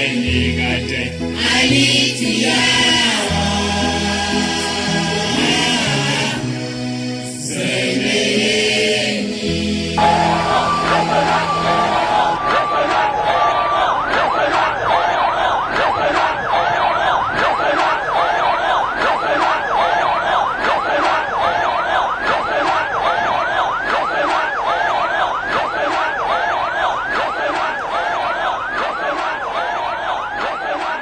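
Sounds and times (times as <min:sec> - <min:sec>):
sirens yelping: 0:10.0 - 0:31.0.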